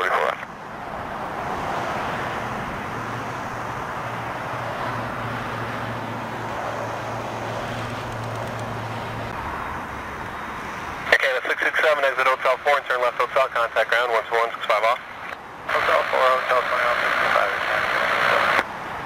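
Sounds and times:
jet engines rushing: 0.0 - 18.7
low engine hum: 0.6 - 11.1.

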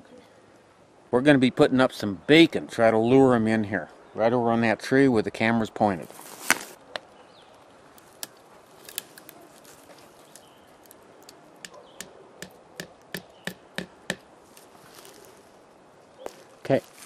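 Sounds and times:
hammer striking nails into wood: 11.6 - 14.2.

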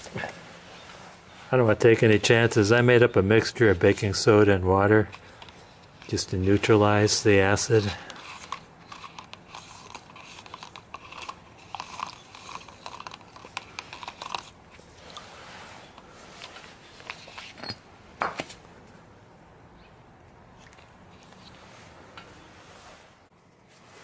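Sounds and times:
metal clicking against plastic cup: 8.1 - 15.2.

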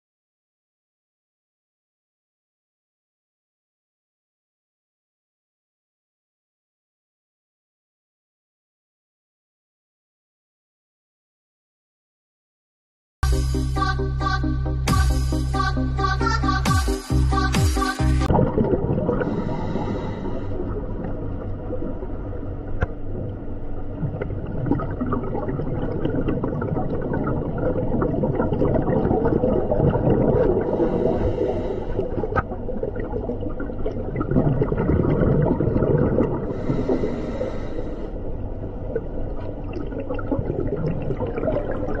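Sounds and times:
underwater rumbling and gurgling: 18.2 - 42.0.

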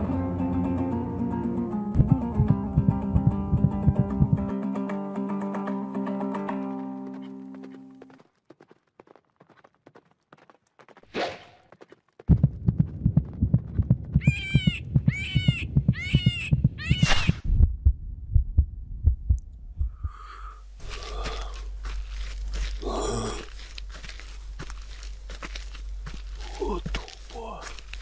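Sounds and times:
fast low thudding pulse: 2.0 - 4.5, 12.3 - 21.1
steady low rumble: 2.0 - 4.5, 12.3 - 28.0
animal squeals: 14.2 - 17.4.

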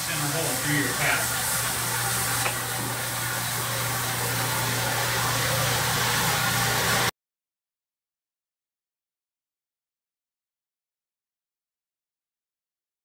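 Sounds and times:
floor buffer humming: 0.0 - 7.1.

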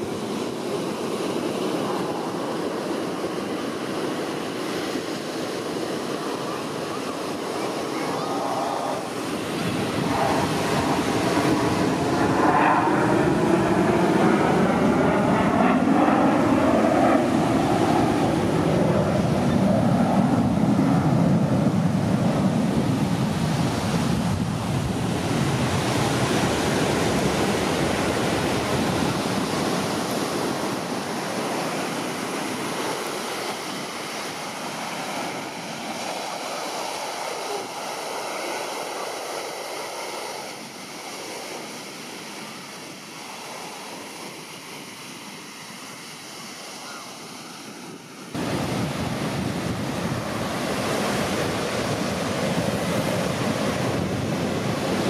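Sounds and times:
jet fighters passing: 0.0 - 42.5.

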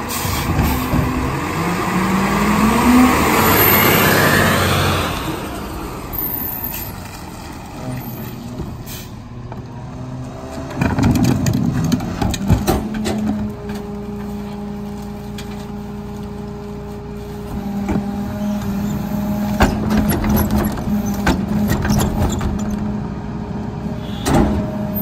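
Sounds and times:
trash cart rolling and tipping: 9.5 - 23.0
knocks and clatter: 10.5 - 13.9.

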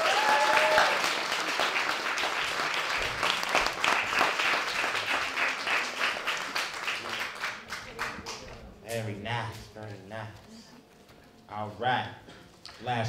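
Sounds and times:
person whooping: 0.0 - 1.1
small audience applauding: 0.0 - 8.6.

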